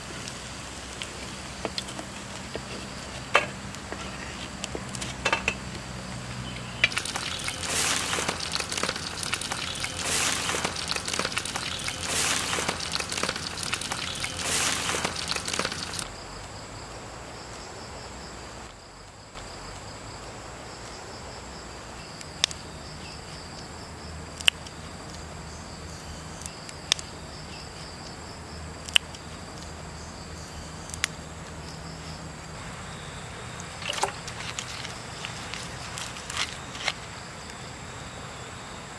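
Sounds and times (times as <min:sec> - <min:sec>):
batter sizzling in hot oil: 0:00.0 - 0:04.4, 0:05.6 - 0:16.1
insects chirring: 0:00.0 - 0:38.9.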